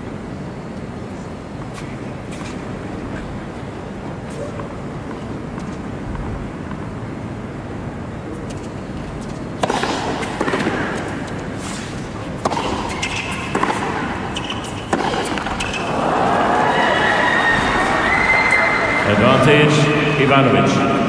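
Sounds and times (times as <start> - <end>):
tennis ball struck by rackets: 9.6 - 16.0
arena crowd murmur: 15.8 - 21.0.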